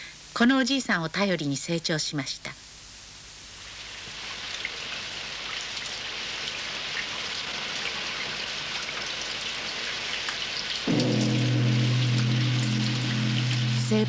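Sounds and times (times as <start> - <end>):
rain falling: 3.6 - 14.0.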